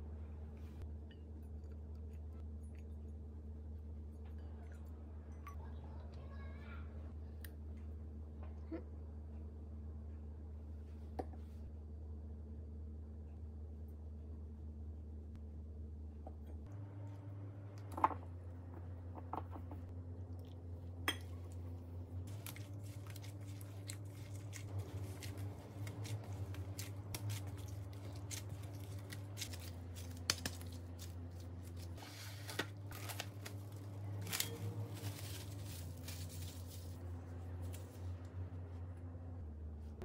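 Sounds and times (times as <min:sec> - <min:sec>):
steady low hum: 0:07.0 - 0:40.0
damp flour crunching and squishing: 0:22.2 - 0:38.1
plastic gloves rustling: 0:22.3 - 0:38.2.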